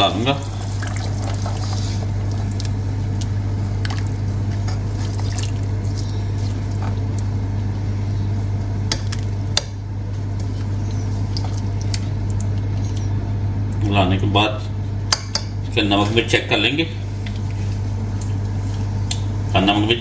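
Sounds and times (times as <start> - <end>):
curry squishing and sloshing: 0.0 - 7.8, 8.8 - 13.2
steady low hum: 0.0 - 20.0.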